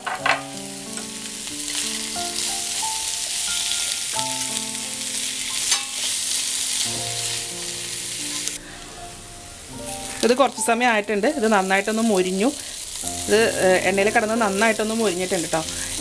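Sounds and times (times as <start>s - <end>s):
food sizzling in oil: 0.0s - 16.0s
soft background music: 0.0s - 16.0s
spatula scraping pan: 8.2s - 8.6s.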